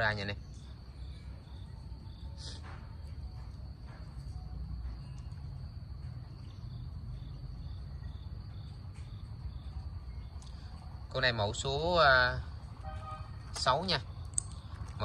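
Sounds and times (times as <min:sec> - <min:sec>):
crickets chirring: 0:00.0 - 0:15.0
faint clicks: 0:14.2 - 0:15.0.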